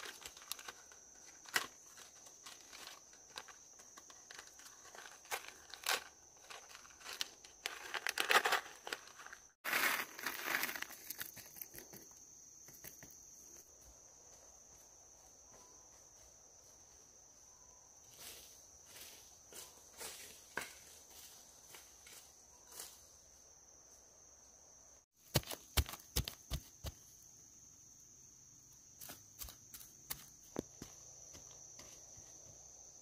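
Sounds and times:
rustling and crinkling handling: 0.0s - 12.0s
high insect trill: 0.0s - 33.0s.

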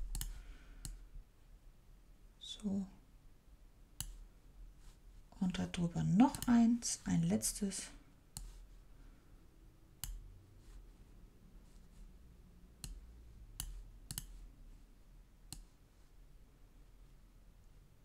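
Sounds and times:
computer mouse buttons clicking: 0.1s - 1.0s, 4.0s - 4.2s, 6.2s - 6.6s, 10.0s - 10.2s, 12.8s - 13.0s, 13.6s - 14.4s.

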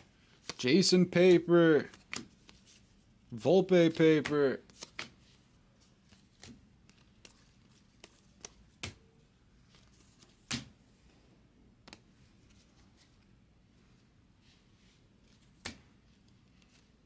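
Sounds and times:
cards flicked by hand: 1.3s - 2.6s, 3.7s - 5.2s, 6.1s - 9.1s, 10.2s - 10.8s, 15.3s - 16.9s.

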